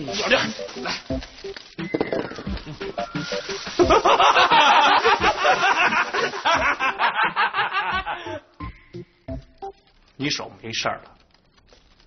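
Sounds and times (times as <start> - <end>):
burst of laughter: 3.8 - 8.4.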